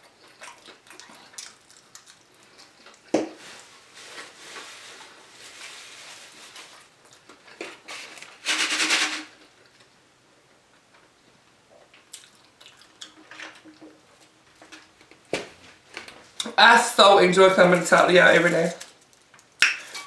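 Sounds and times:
chewing: 0.0s - 3.1s, 11.7s - 15.2s.

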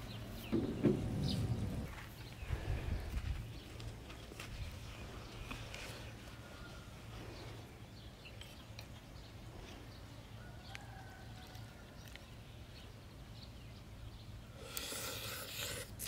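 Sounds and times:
crunchy bite and chewing: 14.6s - 16.0s.

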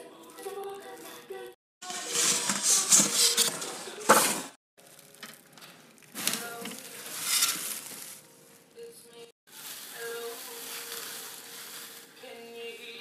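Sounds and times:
styrofoam squeaking against cardboard: 1.8s - 3.8s, 6.1s - 8.2s.

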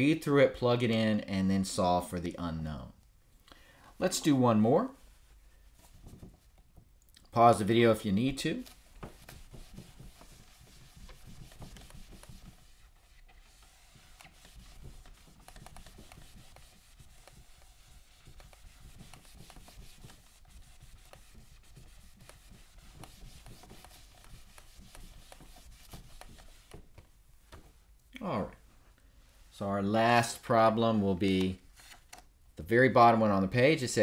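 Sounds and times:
cloth wiping a whiteboard: 4.0s - 6.7s, 7.4s - 27.9s.

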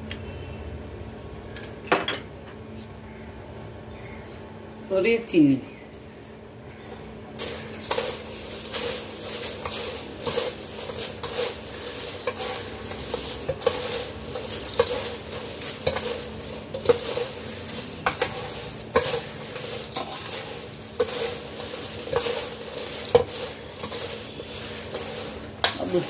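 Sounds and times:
crunchy rustling of dry flakes: 6.1s - 26.0s
metal scrape and clink on plate: 7.4s - 26.0s.

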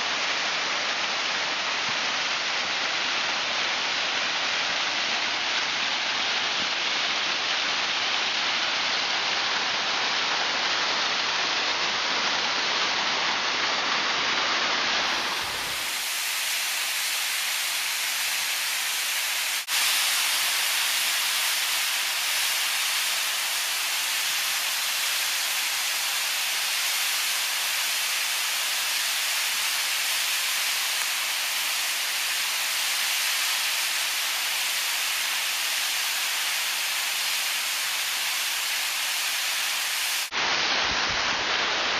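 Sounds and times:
waterfall rushing over rocks: 0.0s - 41.9s.

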